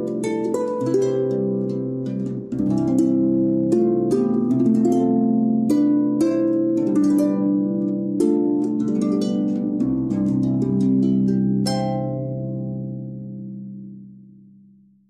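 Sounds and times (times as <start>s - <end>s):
plucked harp-like notes: 0.0s - 14.4s.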